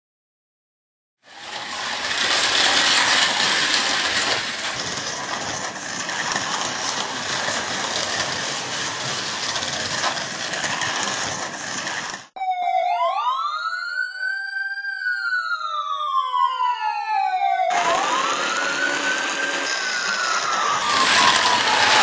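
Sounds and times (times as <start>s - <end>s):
slot cars rattling on track: 1.3s - 12.3s, 17.7s - 22.0s.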